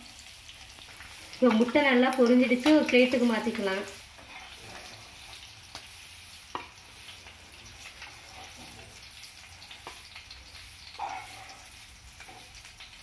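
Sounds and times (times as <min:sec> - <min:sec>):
eggs sizzling in hot oil: 0:00.0 - 0:13.0.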